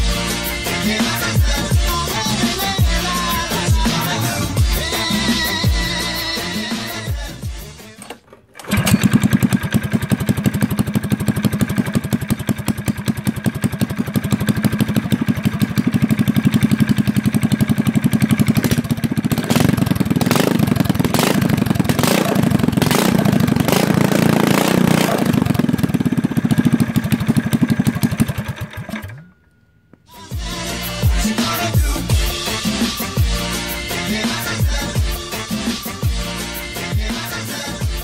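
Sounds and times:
small engine running and revving: 8.7 - 29.1.

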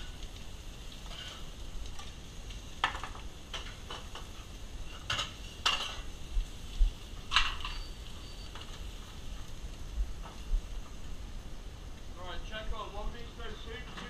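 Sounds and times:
metal pans clattering: 4.9 - 6.0, 7.3 - 7.9.

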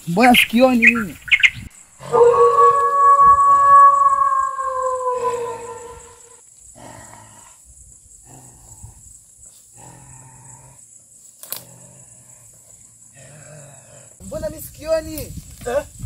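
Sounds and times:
animal howling: 2.0 - 6.4
low rough animal growls: 2.0 - 10.9, 11.6 - 14.2.

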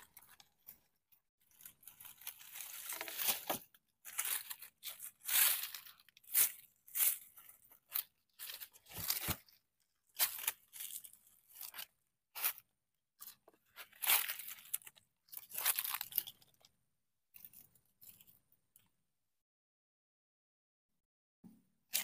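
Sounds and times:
dry leaves and soil crunching: 0.0 - 16.6.

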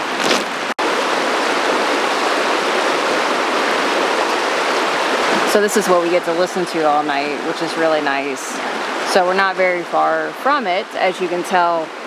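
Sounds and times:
footstep crunching on cobbles: 0.0 - 0.6
river rushing over rocks: 0.0 - 12.0.

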